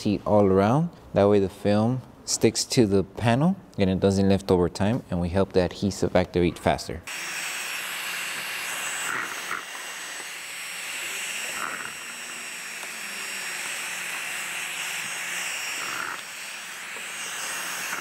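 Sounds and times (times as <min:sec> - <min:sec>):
heat gun blowing hot air: 0:07.1 - 0:18.0.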